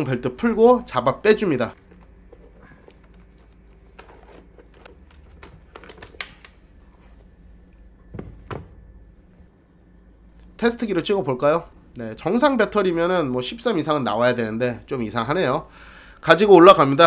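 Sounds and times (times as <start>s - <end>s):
clicks and rustles of handling: 1.8s - 7.3s.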